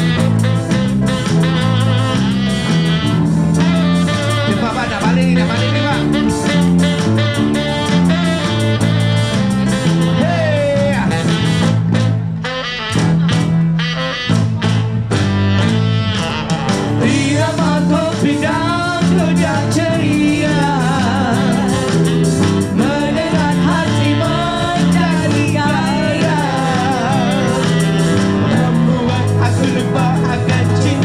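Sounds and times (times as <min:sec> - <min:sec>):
live band playing: 0:00.0 - 0:31.0
person singing with vibrato: 0:03.6 - 0:11.5, 0:16.9 - 0:31.0.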